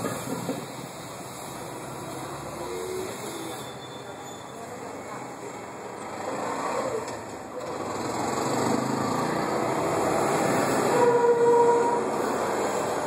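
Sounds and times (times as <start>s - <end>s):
auto-rickshaw engine: 0.0s - 13.0s
road traffic passing: 0.0s - 13.0s
vehicle horn: 10.9s - 12.2s.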